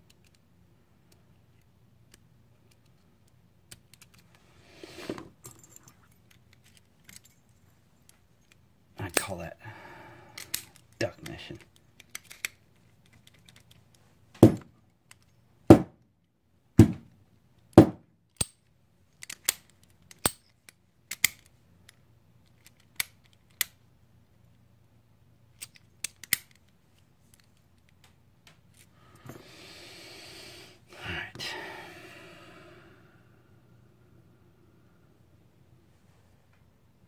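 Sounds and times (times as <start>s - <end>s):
lock picks clicking in lock: 0.0s - 0.5s, 1.2s - 4.3s, 5.4s - 7.4s, 10.4s - 13.9s, 18.3s - 23.8s, 25.5s - 26.7s.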